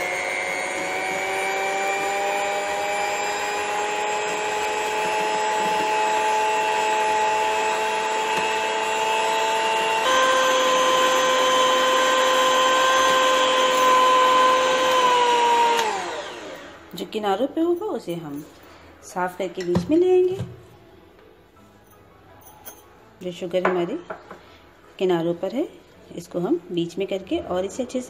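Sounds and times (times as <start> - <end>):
electric hand mixer whining: 0.0 - 17.0.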